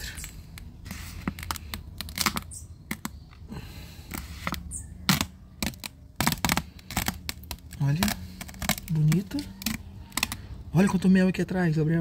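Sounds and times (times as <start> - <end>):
cover sheet peeling and crackling: 0.3 - 3.2, 4.1 - 10.4.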